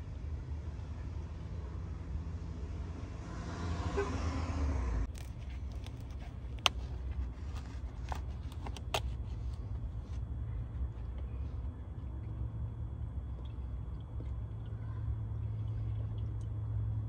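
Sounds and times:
oil gurgling through a funnel: 13.3 - 16.9.

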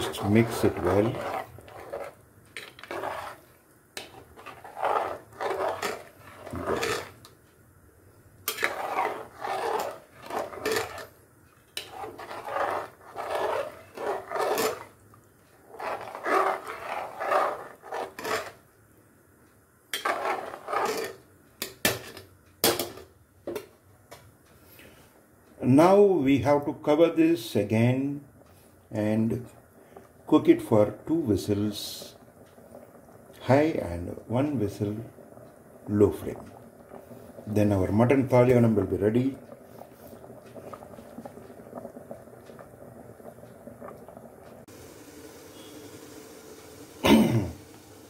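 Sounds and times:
spoon scraping pot: 0.0 - 7.3, 8.5 - 18.6, 19.9 - 21.2.

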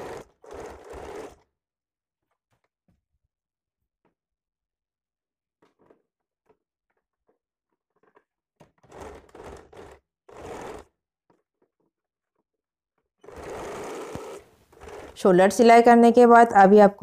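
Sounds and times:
sewing machine stitching: 0.0 - 1.6, 7.8 - 12.4, 13.2 - 15.9.

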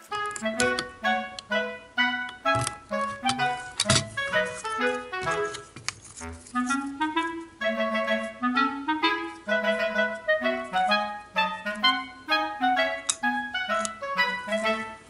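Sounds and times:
light melody over bass line: 0.0 - 15.0.

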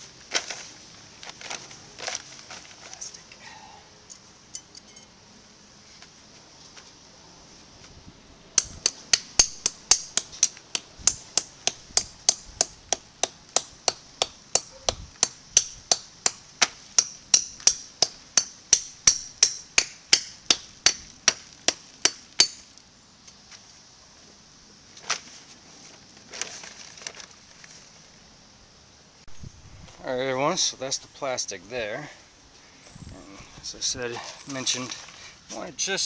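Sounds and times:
hammer striking: 8.6 - 22.7.

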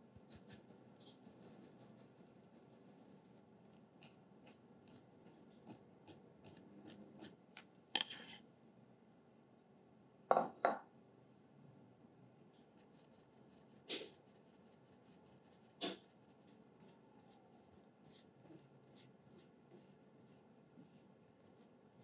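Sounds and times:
sugar sifting through sieve: 0.0 - 7.3.

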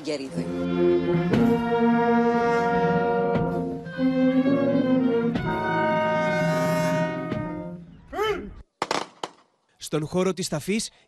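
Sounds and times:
slow solemn orchestral music: 0.3 - 8.0.

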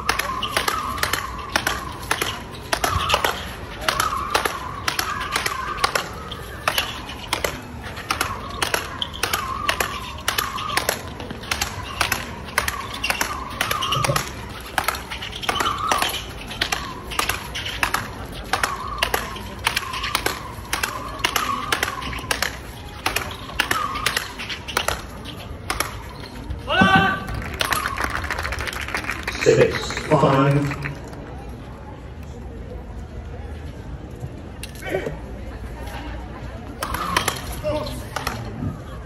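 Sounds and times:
rackets striking ball: 0.0 - 27.9, 36.7 - 38.5.

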